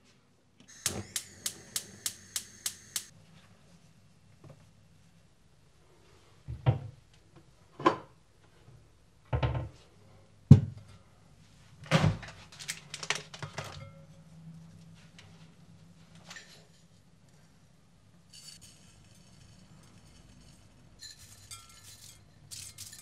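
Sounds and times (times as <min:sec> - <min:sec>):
wooden spoon clicking and knocking: 0:00.7 - 0:03.1.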